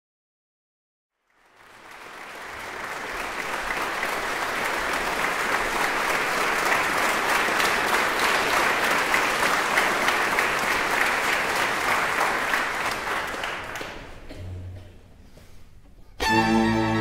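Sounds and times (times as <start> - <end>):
audience applause: 1.2 - 14.5.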